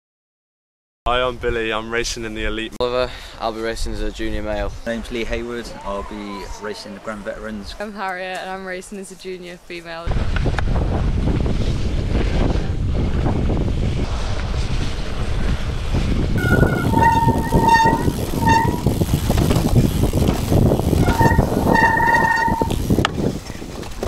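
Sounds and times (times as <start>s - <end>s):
wind on microphone: 10.0s - 24.0s
tyres rolling over rough ground: 14.4s - 24.0s
bike disc brakes squealing: 16.4s - 23.6s.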